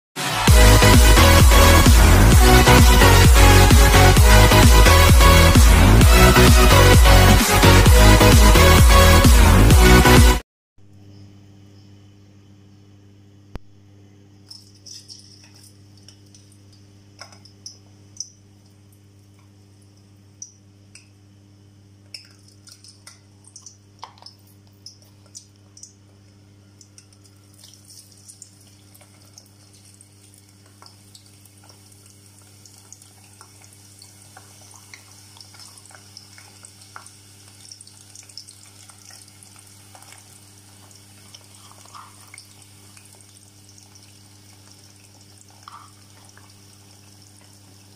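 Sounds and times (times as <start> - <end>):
onions frying in hot oil: 25.7 - 47.9.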